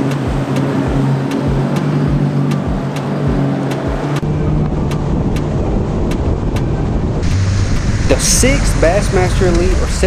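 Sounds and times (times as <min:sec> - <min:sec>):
music with steady beat: 0:00.0 - 0:04.2
motorboat running at speed: 0:00.0 - 0:10.0
wind on microphone: 0:04.2 - 0:10.0.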